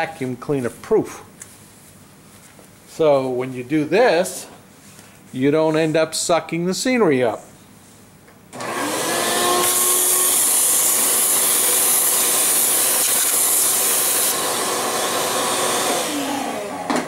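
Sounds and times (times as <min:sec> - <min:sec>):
vacuum cleaner running: 0:08.5 - 0:17.0.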